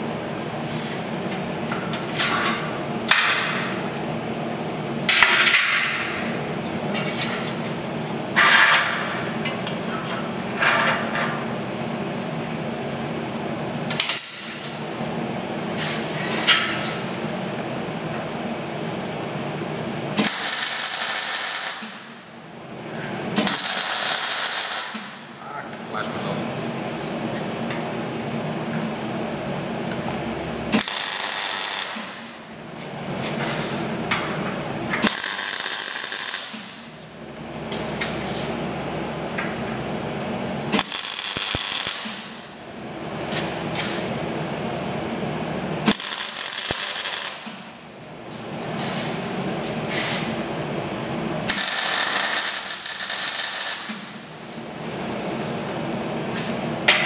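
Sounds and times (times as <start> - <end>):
welding arc crackling and hissing: 20.2 - 22.2, 23.4 - 25.2, 30.7 - 32.3, 35.0 - 36.8, 40.7 - 42.5, 45.8 - 47.7, 51.5 - 54.7.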